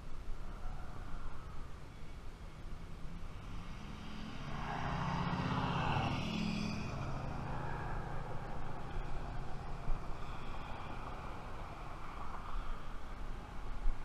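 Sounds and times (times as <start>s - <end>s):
vehicle driving past: 3.0s - 12.8s.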